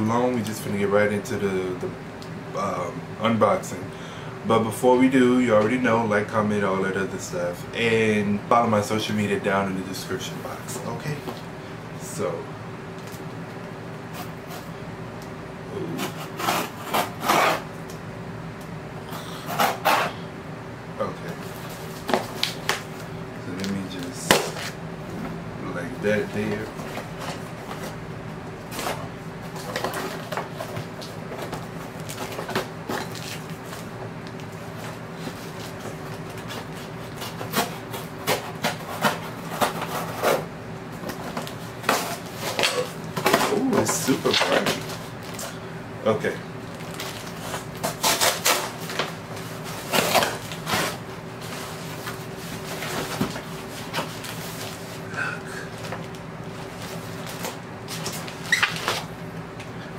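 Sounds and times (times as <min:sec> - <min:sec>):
faint steady hum: 0:00.0 - 0:59.9
scissors slicing packing tape: 0:36.3 - 0:40.4, 0:47.5 - 0:49.0
scissors slitting packing tape: 0:47.5 - 0:49.0.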